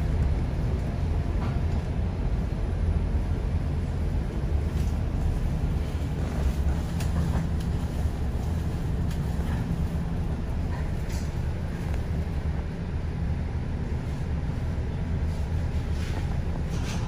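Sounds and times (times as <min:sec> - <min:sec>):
bus engine rumble: 0:00.0 - 0:17.0
road noise: 0:00.0 - 0:17.0.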